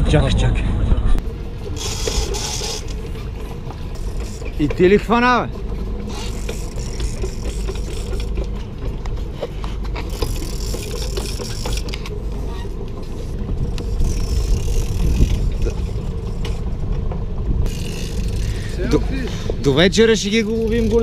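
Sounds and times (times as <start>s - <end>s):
low boat rumble: 0.0s - 21.0s
fishing reels clicking: 1.6s - 3.2s, 3.9s - 4.8s, 6.0s - 8.5s, 9.6s - 16.6s, 17.6s - 19.5s, 20.2s - 21.0s.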